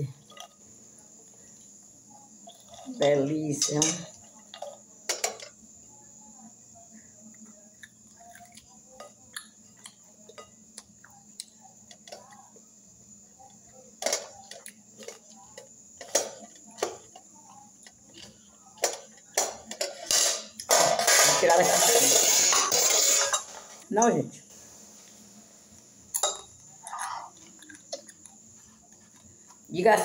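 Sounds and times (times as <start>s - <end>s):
soft chewing: 2.4s - 2.9s, 7.1s - 12.5s, 26.6s - 29.7s
fork scraping glass bowl: 21.1s - 23.5s, 26.8s - 27.4s.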